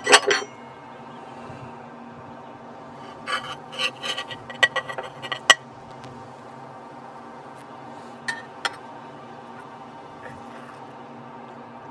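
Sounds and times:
metal spatula scraping dish: 0:03.2 - 0:05.6.

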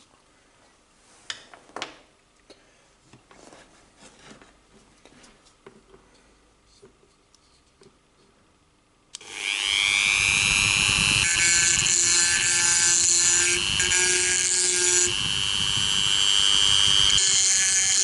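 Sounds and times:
rotary tool motor whine: 0:09.2 - 0:18.0
grinding stone scraping steel: 0:09.4 - 0:18.0.

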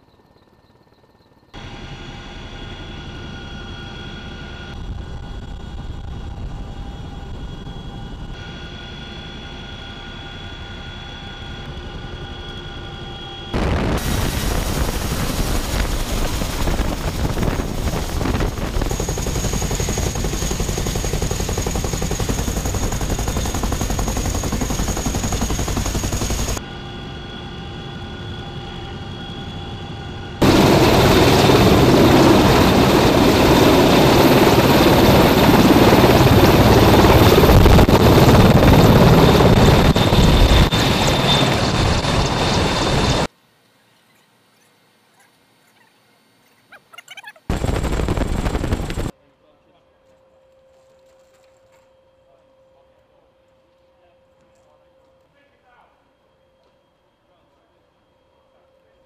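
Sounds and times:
helicopter turbine whine: 0:00.0 - 0:43.3, 0:47.2 - 0:49.2, 0:50.2 - 0:59.0
hovering helicopter: 0:00.0 - 0:43.3, 0:47.0 - 0:49.1
wind buffeting microphone: 0:13.6 - 0:21.1.

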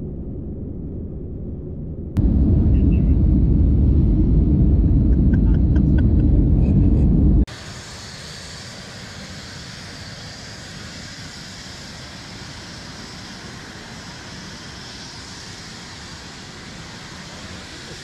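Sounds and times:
faint low rumble: 0:00.0 - 0:07.5
airliner cabin rumble: 0:01.0 - 0:07.5.

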